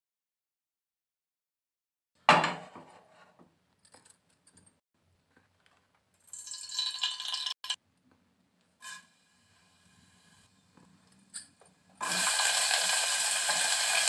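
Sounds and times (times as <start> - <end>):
oil sizzling and crackling: 6.3 - 7.8, 12.0 - 14.0.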